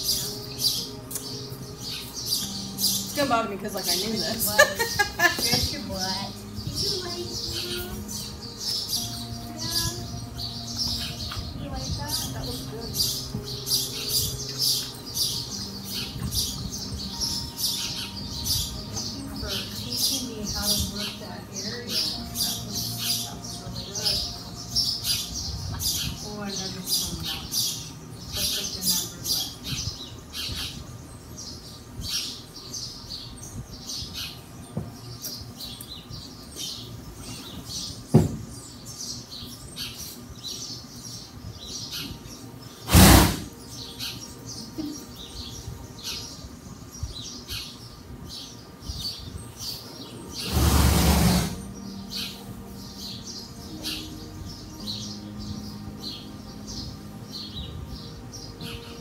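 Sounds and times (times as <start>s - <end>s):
small birds chirping: 0.0s - 59.0s
rushing burst: 42.9s - 43.5s
sudden loud burst: 42.9s - 43.5s.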